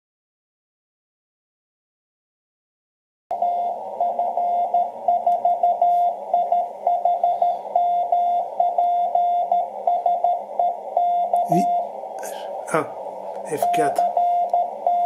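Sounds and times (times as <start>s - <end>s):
morse code beeps: 3.3s - 12.0s, 13.5s - 15.0s
receiver hiss: 3.3s - 15.0s.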